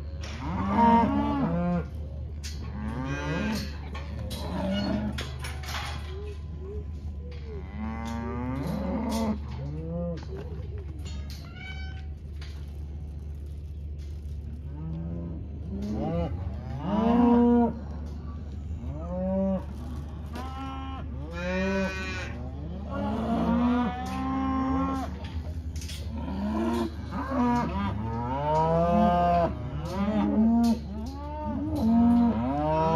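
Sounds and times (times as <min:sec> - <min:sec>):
cows and calves bawling: 0:14.8 - 0:32.9.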